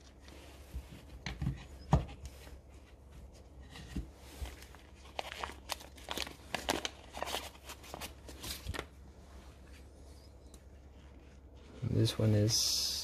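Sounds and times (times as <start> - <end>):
wrapping paper crinkling: 4.3 - 9.1.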